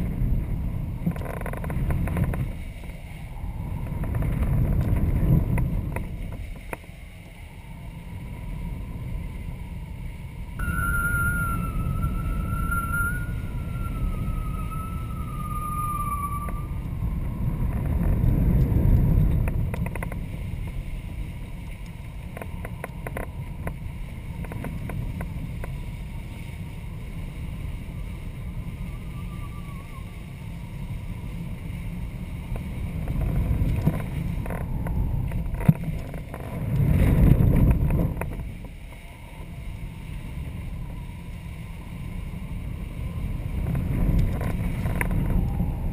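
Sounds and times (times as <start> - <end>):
wind rumble on camera: 0.0 - 45.9
faint thin whistle: 10.6 - 17.0, 28.8 - 30.2.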